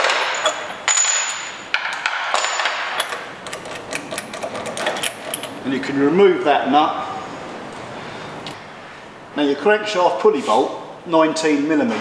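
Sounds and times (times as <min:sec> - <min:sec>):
tools and bolts clinking on metal: 0:00.0 - 0:05.6.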